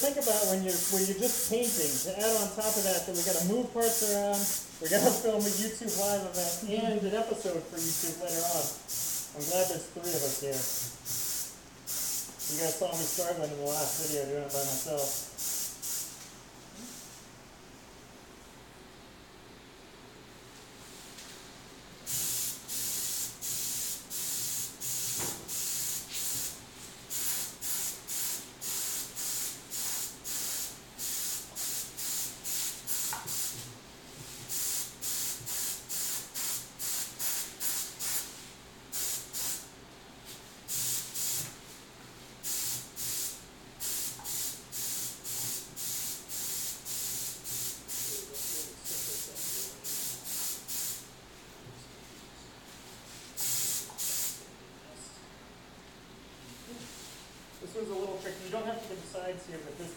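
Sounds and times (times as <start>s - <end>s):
paint spray gun hissing: 0.0s - 6.7s, 7.8s - 16.1s, 22.1s - 33.6s, 34.5s - 39.6s, 40.7s - 41.5s, 42.4s - 51.0s, 53.4s - 54.4s.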